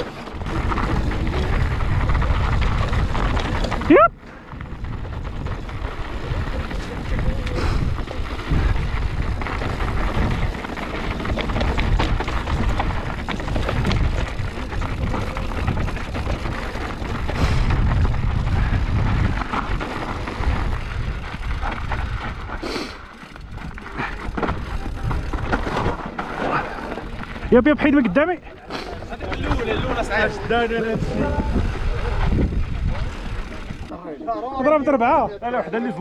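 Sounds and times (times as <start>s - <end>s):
bike rattles and knocks: 0.0s - 33.9s
rushing wind: 0.0s - 33.9s
bike tyre noise: 0.0s - 34.0s.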